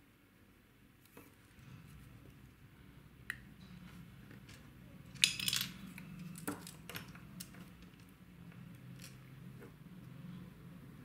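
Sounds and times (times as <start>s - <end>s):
small clicks handling metal parts: 4.4s - 9.2s.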